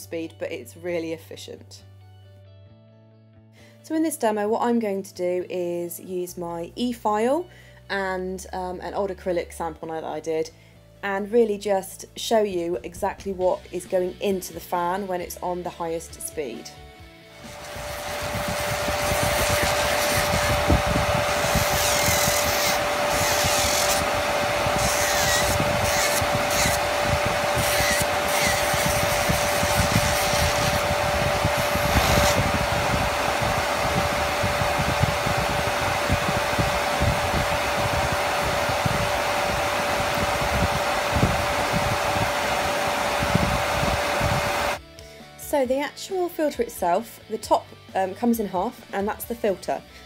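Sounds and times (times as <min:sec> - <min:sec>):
dust extractor fan running: 0:17.3 - 0:44.8
electric nail file grinding: 0:17.3 - 0:44.8.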